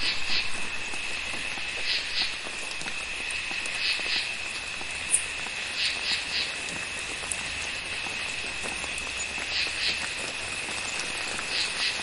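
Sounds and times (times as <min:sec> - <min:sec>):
frog calls: 0:00.0 - 0:00.6, 0:01.7 - 0:02.8, 0:03.6 - 0:04.4, 0:05.1 - 0:06.7, 0:07.9 - 0:12.0
insects droning: 0:00.0 - 0:12.0.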